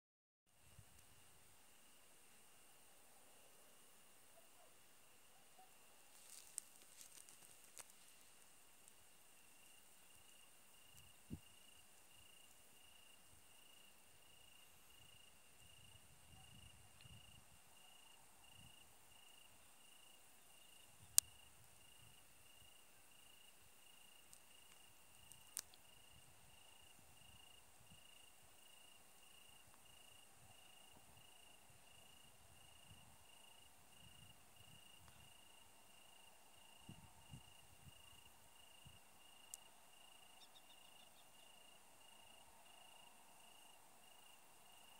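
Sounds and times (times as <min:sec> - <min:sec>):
steady high hiss: 0:00.5 - 0:16.2
crickets chirping: 0:00.6 - 0:44.9.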